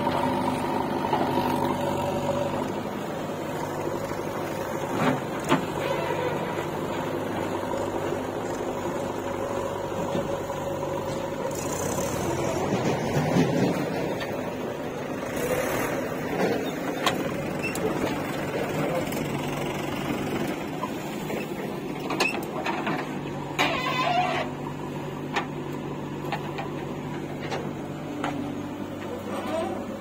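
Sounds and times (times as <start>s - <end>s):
diesel engine running under load: 0.0s - 30.0s.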